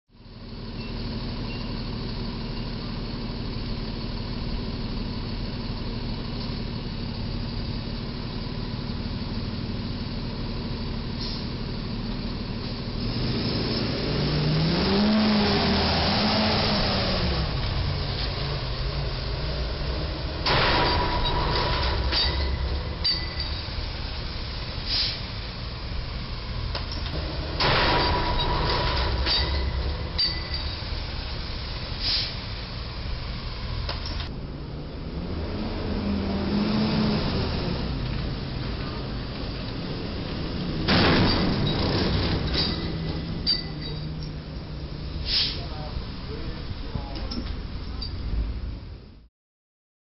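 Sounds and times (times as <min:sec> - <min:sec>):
road traffic rumble: 0:00.1 - 0:49.3
truck engine: 0:00.1 - 0:49.3
metallic bang with ringing: 0:27.4 - 0:31.0.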